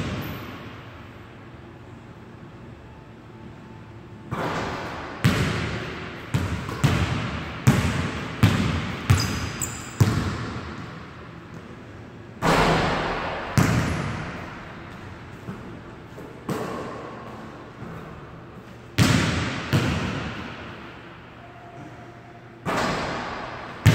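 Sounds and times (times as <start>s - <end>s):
sneaker squeak: 9.1s - 10.0s.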